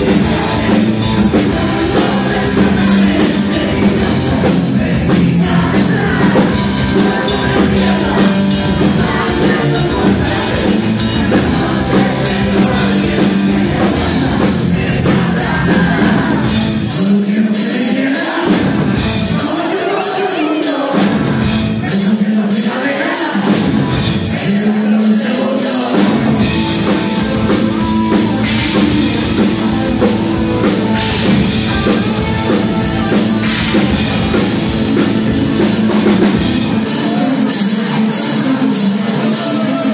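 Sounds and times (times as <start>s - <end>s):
electric guitar: 0.0s - 17.1s, 25.3s - 39.9s
bass guitar: 0.0s - 19.7s, 20.9s - 39.9s
drums: 0.0s - 39.9s
man singing: 0.0s - 39.9s.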